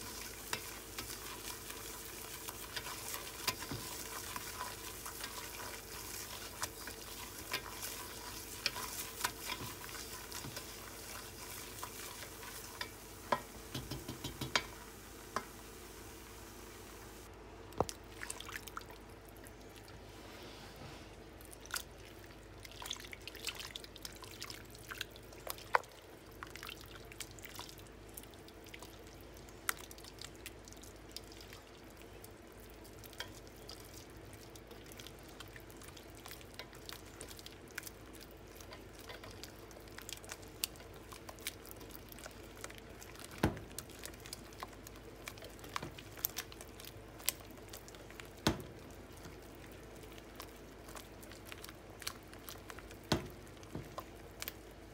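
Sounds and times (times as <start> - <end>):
whisk stirring thick mixture: 0.0 - 14.7, 29.6 - 54.9
whisk knocking against glass bowl: 13.7 - 14.7.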